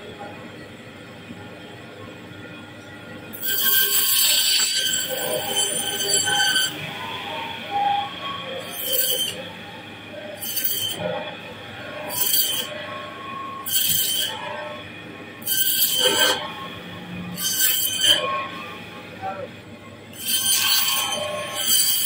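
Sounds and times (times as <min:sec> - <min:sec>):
band saw running: 0:03.3 - 0:14.4
band saw blade screeching through fish: 0:03.4 - 0:06.8, 0:08.6 - 0:09.4, 0:10.4 - 0:11.0, 0:12.1 - 0:12.7, 0:13.6 - 0:14.4, 0:15.4 - 0:16.4, 0:17.4 - 0:18.3, 0:20.2 - 0:22.0.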